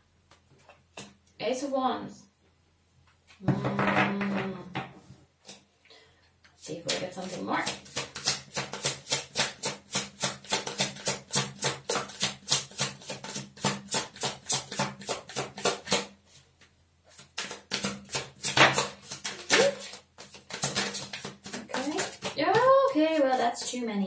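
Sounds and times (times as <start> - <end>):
cards being shuffled: 6.8 - 9.8, 17.1 - 23.4.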